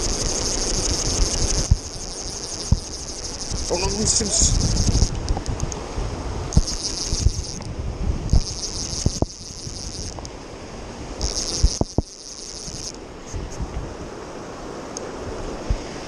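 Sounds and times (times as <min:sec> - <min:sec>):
fly reel buzzing: 0:00.0 - 0:05.2, 0:06.5 - 0:10.3, 0:11.2 - 0:13.0
wind and river rumble: 0:00.0 - 0:16.0.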